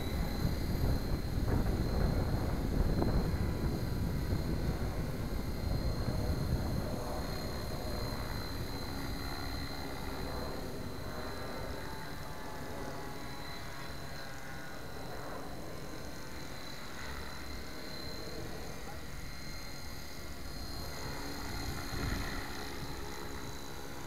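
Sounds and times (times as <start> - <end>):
rc helicopter motor whine: 0.0 - 24.0.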